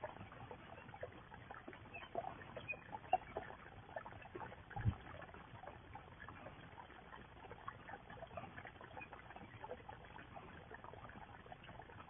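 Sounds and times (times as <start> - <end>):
faint water trickle: 0.0 - 12.0
small ticks and crackles: 0.0 - 12.0
soft low thump: 4.8 - 5.0.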